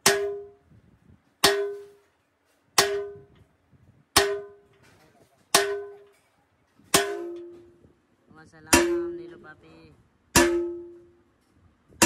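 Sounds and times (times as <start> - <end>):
sledgehammer clanging on steel tool: 4.2 - 7.8.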